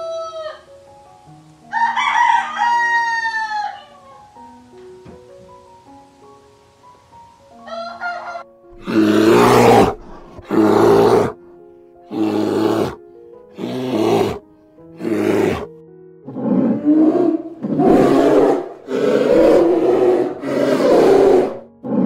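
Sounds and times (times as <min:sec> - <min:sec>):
background music sustained notes: 0:00.0 - 0:22.0
large animal roaring: 0:08.8 - 0:11.4, 0:12.1 - 0:13.0, 0:13.6 - 0:14.4, 0:15.0 - 0:15.7, 0:16.3 - 0:22.0.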